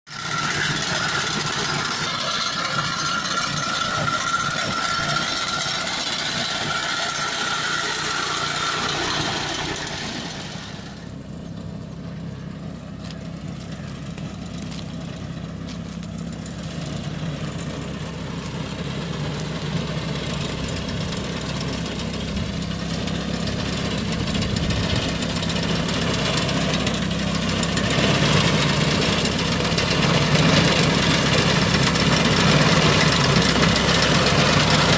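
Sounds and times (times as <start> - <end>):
small petrol engine running: 0.1 - 34.9.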